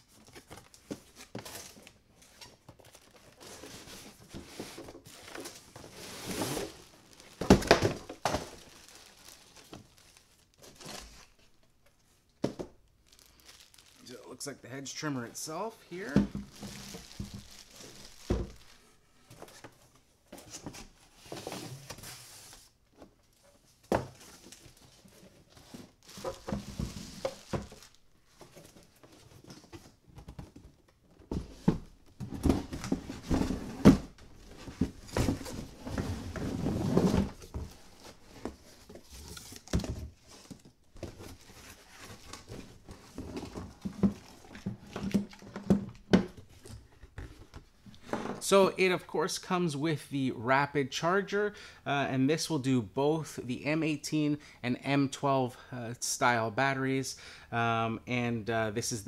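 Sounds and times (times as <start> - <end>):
cardboard box rustling and scraping: 1.0 - 7.6, 31.4 - 45.8
plastic wrap crinkling: 5.1 - 11.6, 12.3 - 14.5, 15.4 - 19.0, 25.9 - 28.8.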